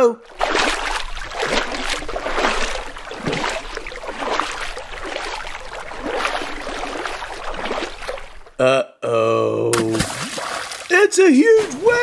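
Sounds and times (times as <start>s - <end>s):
running water: 0.0s - 8.6s, 9.7s - 12.0s
paddle splashing through water: 0.2s - 8.6s, 9.8s - 12.0s.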